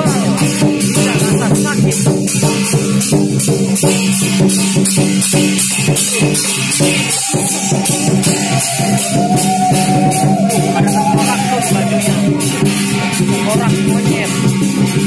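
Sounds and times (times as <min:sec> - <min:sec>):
music with steady beat and bass: 0:00.0 - 0:15.0
held melody line: 0:05.5 - 0:13.9.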